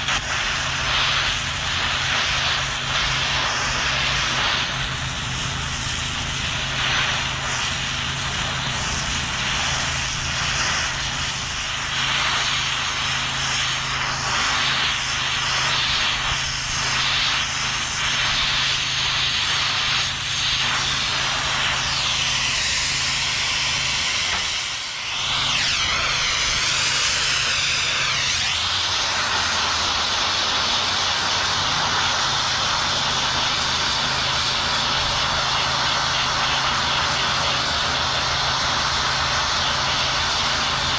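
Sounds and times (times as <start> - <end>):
plasma torch hissing: 0.0 - 40.9.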